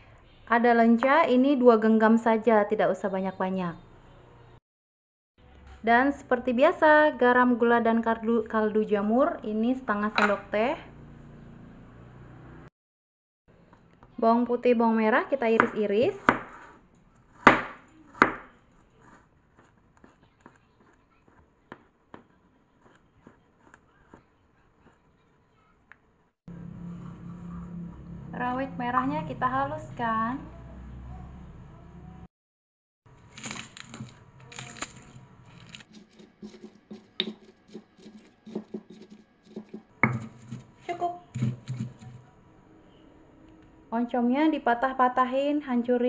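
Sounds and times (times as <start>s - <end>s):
knife chopping on cutting board: 15.6s - 16.8s, 17.4s - 18.6s, 21.7s - 24.2s, 35.9s - 40.7s, 41.4s - 42.2s
stone pestle grinding in mortar: 19.0s - 25.0s, 33.4s - 42.2s.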